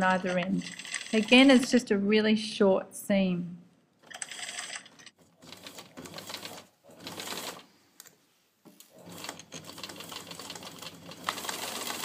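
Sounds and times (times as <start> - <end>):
sewing machine stitching: 0.0 - 1.6, 4.0 - 7.7, 8.9 - 12.0.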